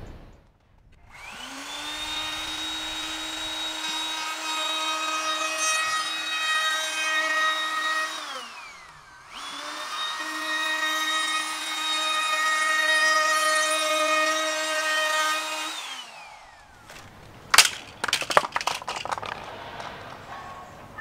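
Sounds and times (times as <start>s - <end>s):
electric router cutting wood: 1.1s - 17.1s.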